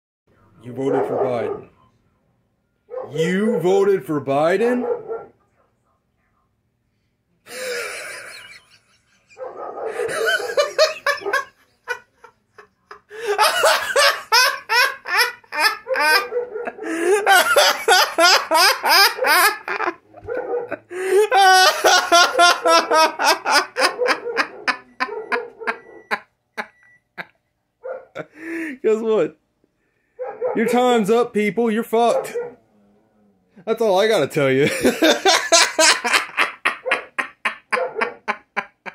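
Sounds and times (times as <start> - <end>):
man belly laughing: 7.5 - 27.4, 28.2 - 28.8, 34.6 - 38.9.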